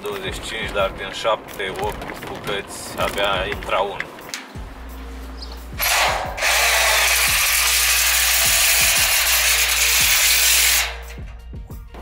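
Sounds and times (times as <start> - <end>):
power drill driving screw into steel: 5.8 - 11.2.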